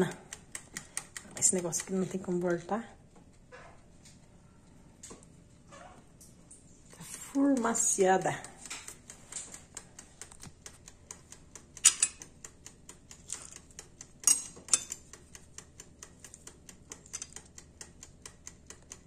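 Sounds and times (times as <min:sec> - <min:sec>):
steady fast ticking: 0:07.0 - 0:14.3, 0:15.0 - 0:19.0
knife and fork clinking on plate: 0:11.8 - 0:12.2, 0:14.2 - 0:15.0.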